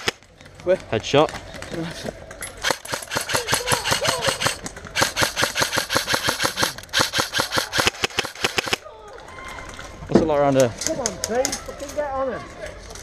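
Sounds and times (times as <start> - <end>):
airsoft rifle firing full auto: 2.6 - 8.8.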